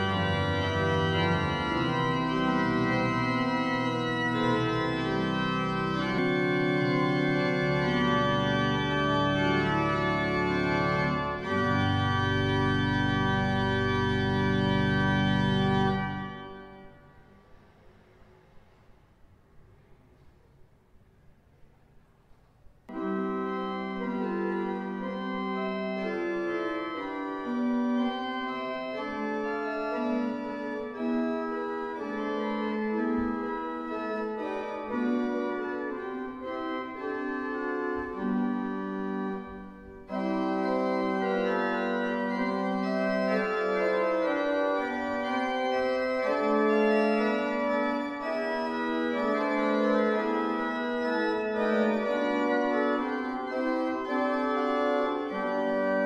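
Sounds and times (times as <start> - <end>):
pipe organ playing chords: 0.0 - 17.6, 22.9 - 56.0.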